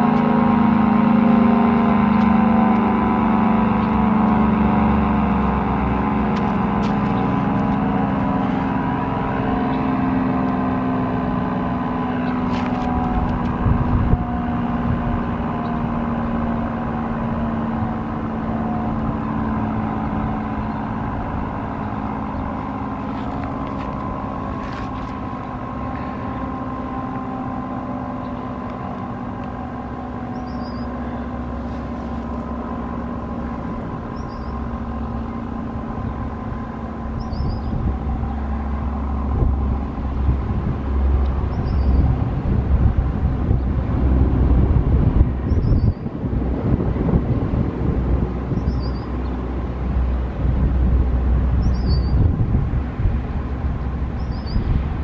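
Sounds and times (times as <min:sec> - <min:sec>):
warning siren steady tone: 0:00.0 - 0:55.0
low rumble: 0:01.8 - 0:55.0
bird chirping: 0:30.3 - 0:31.3, 0:34.1 - 0:34.8, 0:37.2 - 0:37.8, 0:41.5 - 0:42.1, 0:45.4 - 0:46.1, 0:48.5 - 0:49.4, 0:51.6 - 0:52.2, 0:54.2 - 0:54.7.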